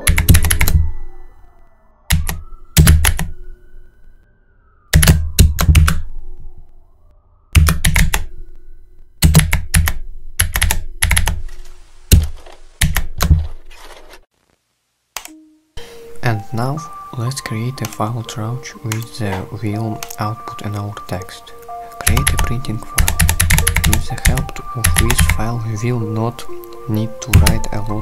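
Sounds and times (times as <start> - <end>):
rapid keyboard typing: 0.0 - 1.0, 2.1 - 3.3, 4.9 - 6.1, 7.5 - 8.3, 9.2 - 11.4, 12.1 - 13.6, 19.9 - 21.3, 21.9 - 26.0, 26.9 - 28.0.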